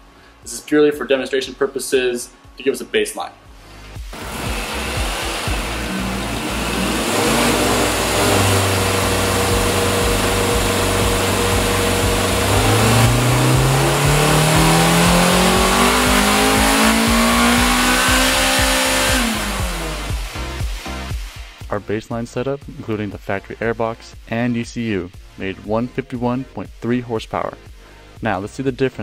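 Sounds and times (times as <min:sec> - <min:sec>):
car engine revving on dyno: 0:04.0 - 0:21.3.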